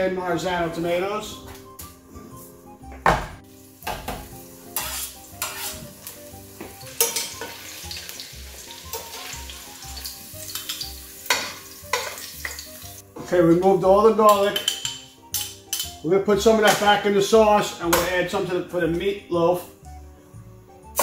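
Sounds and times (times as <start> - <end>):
garlic sizzling in oil: 3.4 - 13.0
metal tongs scraping a pot: 4.7 - 6.0, 6.9 - 7.6, 14.2 - 16.0.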